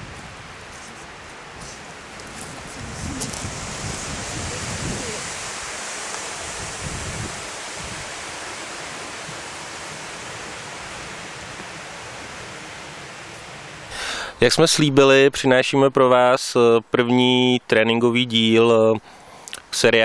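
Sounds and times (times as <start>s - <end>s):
rushing outdoor noise: 0.0s - 15.6s.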